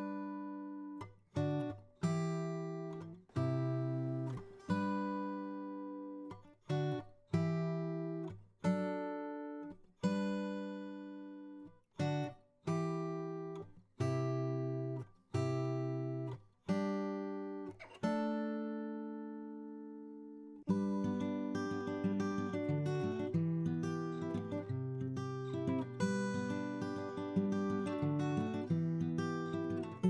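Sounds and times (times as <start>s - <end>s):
acoustic guitar strumming chords: 14.1s - 30.0s.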